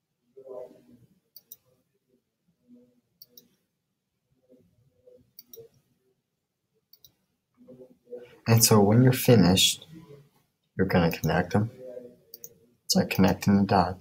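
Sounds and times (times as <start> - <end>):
faint low murmurs: 0.2 - 3.5, 7.6 - 14.0.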